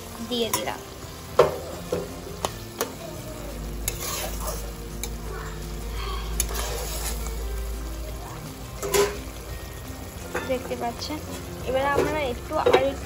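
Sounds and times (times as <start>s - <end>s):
food sizzling: 0.0s - 13.0s
spatula scraping a wok: 3.8s - 7.6s, 8.8s - 9.4s.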